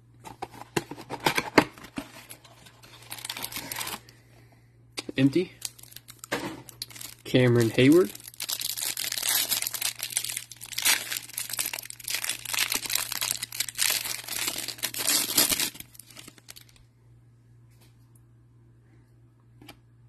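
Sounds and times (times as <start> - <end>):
plastic wrapper crinkling and tearing: 1.3 - 4.1, 5.2 - 16.8.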